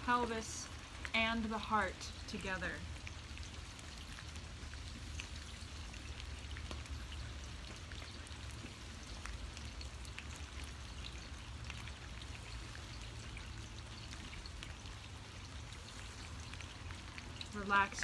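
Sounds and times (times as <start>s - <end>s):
rain falling: 0.0s - 18.0s
raindrops ticking sharply: 0.0s - 18.0s.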